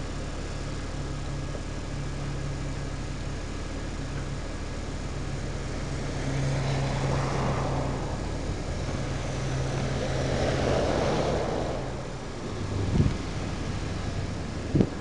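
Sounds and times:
low engine hum: 0:00.0 - 0:15.0
tyres rushing on snowy road: 0:05.0 - 0:15.0.

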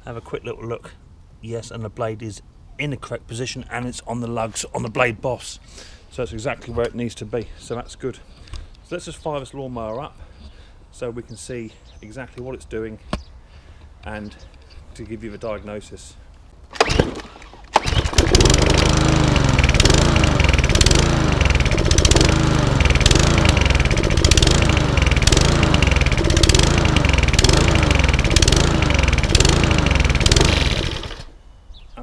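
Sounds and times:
lawnmower engine hunting: 0:16.7 - 0:31.4
lawnmower engine pull-start: 0:16.7 - 0:31.4.

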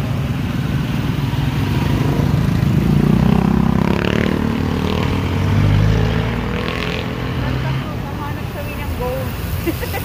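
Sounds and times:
motorcycle engine passing: 0:00.3 - 0:08.1.

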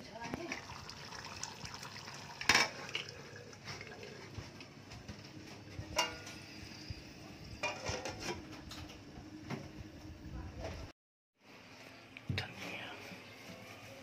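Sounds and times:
metal cookware clinking: 0:05.9 - 0:06.6, 0:07.6 - 0:08.5.

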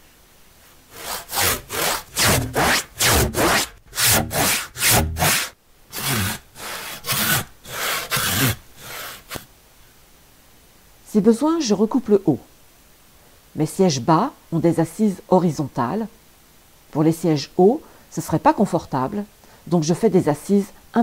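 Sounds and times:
handsaw cutting wood: 0:00.9 - 0:09.5.

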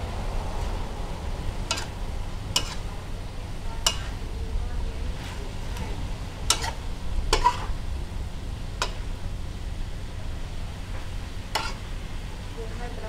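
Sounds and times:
low rumble: 0:00.0 - 0:13.0
metal spatula scraping a wok: 0:01.6 - 0:03.1, 0:03.8 - 0:04.3, 0:06.4 - 0:07.8, 0:08.8 - 0:09.1, 0:11.4 - 0:11.9.

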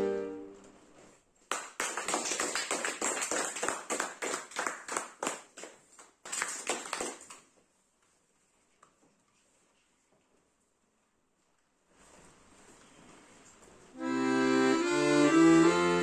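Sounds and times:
people clapping: 0:01.4 - 0:07.5.

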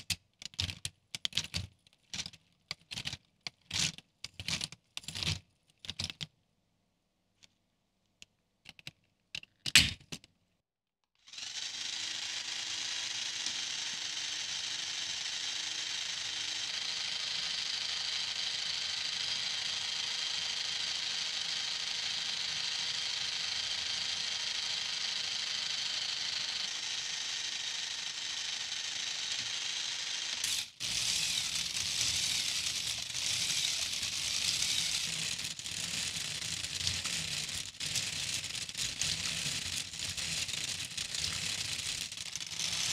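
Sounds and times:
plastic parts clicking: 0:00.0 - 0:06.3, 0:08.2 - 0:10.4
faint motor hum: 0:11.3 - 0:42.9.

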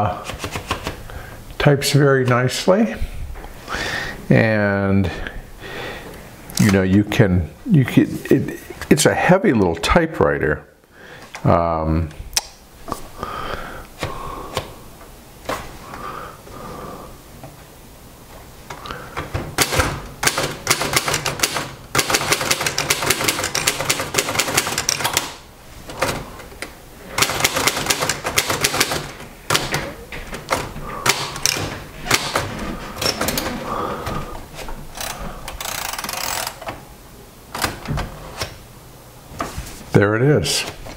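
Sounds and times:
typewriter carriage return: 0:00.2 - 0:01.0, 0:19.6 - 0:26.3, 0:27.1 - 0:33.6, 0:34.9 - 0:36.8
typewriter keystrokes: 0:19.6 - 0:25.4, 0:27.2 - 0:29.8.

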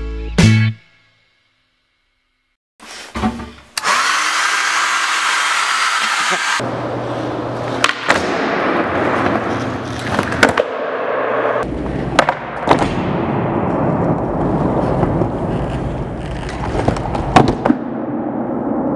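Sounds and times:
skateboard wheels rolling on concrete: 0:13.6 - 0:18.9.

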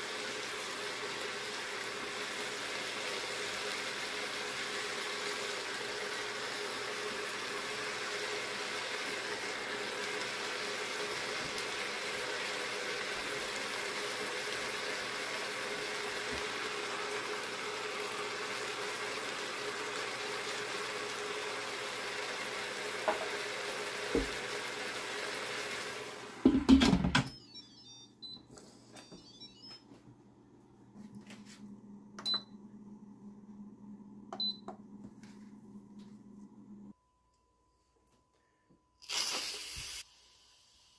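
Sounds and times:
food sizzling: 0:00.0 - 0:26.6, 0:39.0 - 0:40.9
short beeps: 0:29.0 - 0:29.8.

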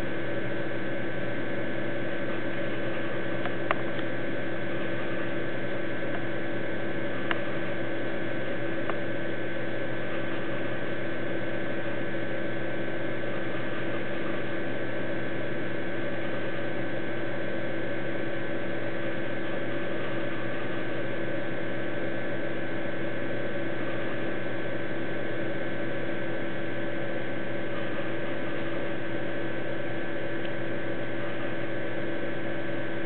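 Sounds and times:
electrical hum and hiss: 0:00.0 - 0:33.0.

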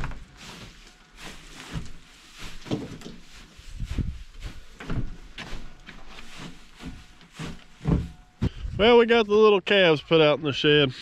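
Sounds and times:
footsteps on wooden floor: 0:00.0 - 0:08.7
dry hay rustling and crunching: 0:00.0 - 0:09.2.

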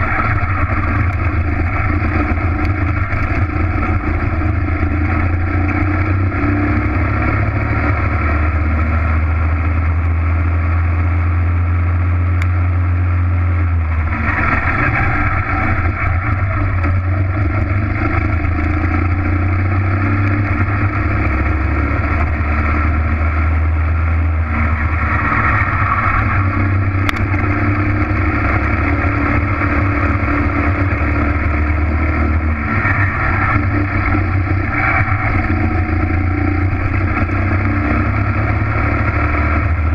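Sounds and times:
racing kart engine running hard: 0:00.0 - 0:39.9.

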